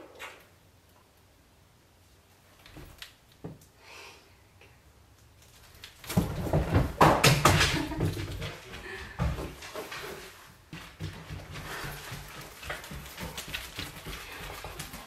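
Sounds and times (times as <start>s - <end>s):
dog paws thumping and scuffling: 5.4s - 15.0s
soft rustling: 8.5s - 15.0s.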